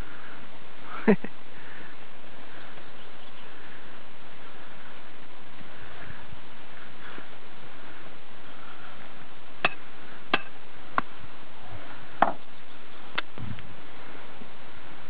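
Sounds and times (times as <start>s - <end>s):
steady hiss: 0.0s - 15.0s.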